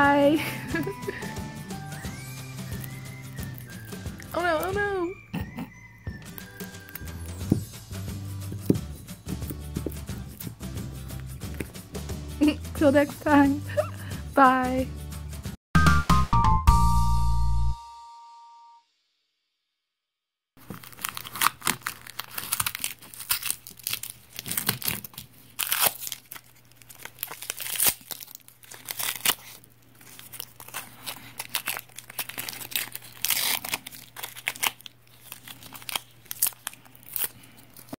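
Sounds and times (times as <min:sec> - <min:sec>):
hook-and-loop strips ripping apart: 0:20.6 - 0:38.0.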